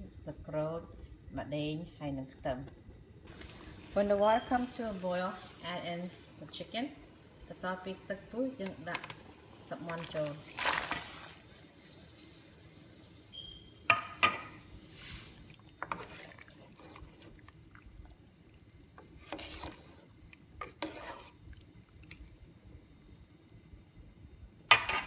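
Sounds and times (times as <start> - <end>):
water sloshing and splashing: 9.9 - 11.4, 15.0 - 22.6.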